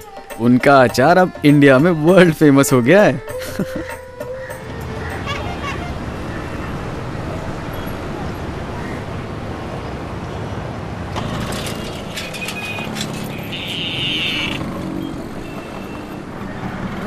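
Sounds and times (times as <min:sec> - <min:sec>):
traffic noise: 0:00.0 - 0:17.0
clatter: 0:11.2 - 0:13.4.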